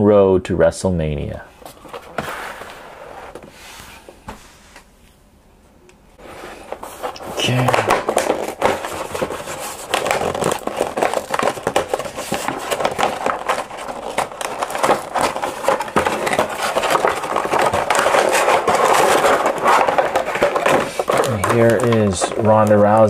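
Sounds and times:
cardboard rustling: 0:01.6 - 0:04.9, 0:06.2 - 0:23.0
thin plastic crinkling: 0:06.6 - 0:23.0.

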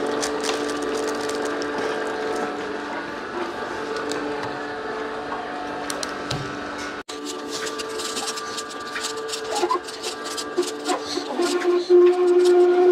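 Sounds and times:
auger crunching apple: 0:00.0 - 0:02.5
juicer motor hum: 0:00.0 - 0:12.9.

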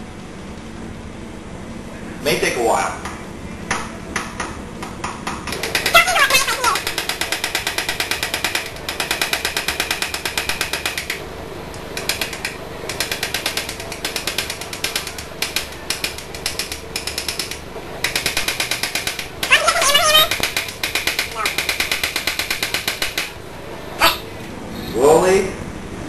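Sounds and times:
needle being hammered rapid tapping: 0:04.2 - 0:11.2, 0:12.0 - 0:23.4.

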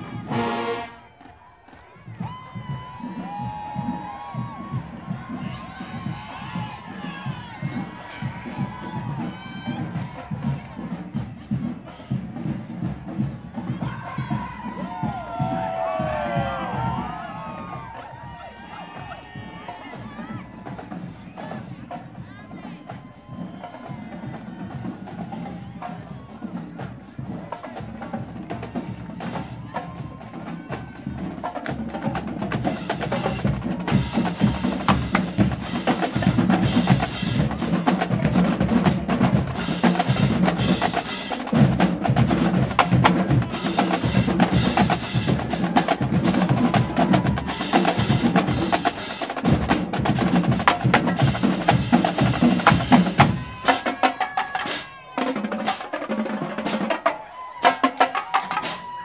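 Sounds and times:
drumline playing cadence: 0:00.0 - 0:59.0.

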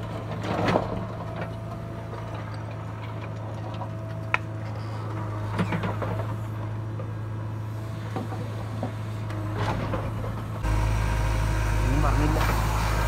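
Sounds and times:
diesel engine running: 0:01.0 - 0:13.0.

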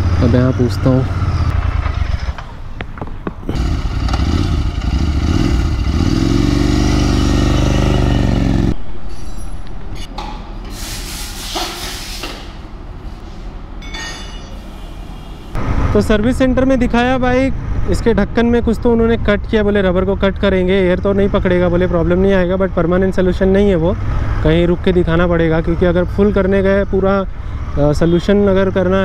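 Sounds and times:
traffic noise: 0:00.0 - 0:29.0.

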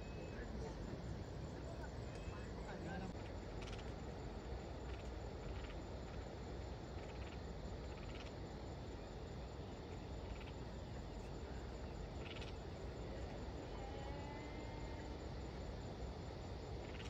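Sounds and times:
faint gliding whistle: 0:00.0 - 0:00.8, 0:01.7 - 0:03.0
insect chirps: 0:00.0 - 0:17.0
outdoor background rumble: 0:00.0 - 0:17.0.

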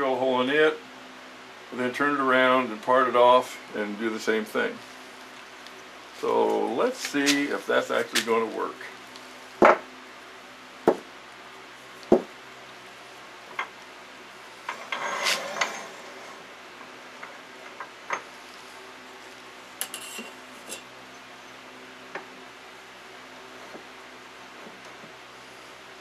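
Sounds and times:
metal scrape: 0:14.6 - 0:16.4, 0:19.8 - 0:20.8.

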